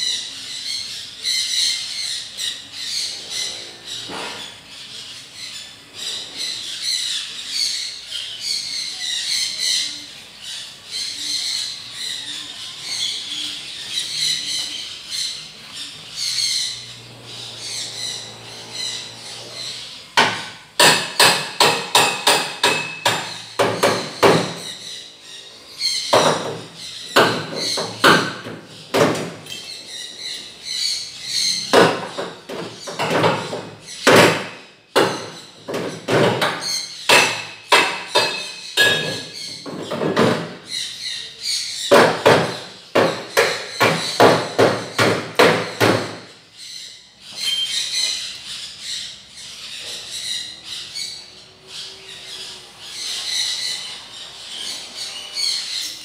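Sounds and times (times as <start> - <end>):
rapid hammering on metal: 20.2 - 24.8, 26.1 - 29.4, 31.6 - 40.6, 41.9 - 46.3.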